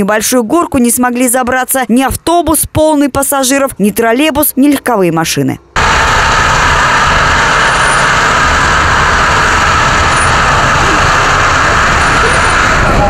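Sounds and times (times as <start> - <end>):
car engine running: 5.8 - 13.0.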